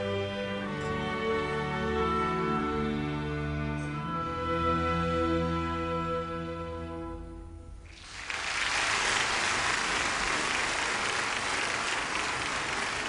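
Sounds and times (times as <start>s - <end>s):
audience applause: 7.9s - 13.0s.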